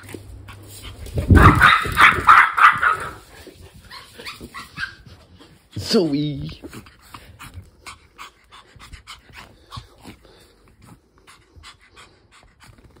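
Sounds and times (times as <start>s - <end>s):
dog panting: 3.2s - 13.0s.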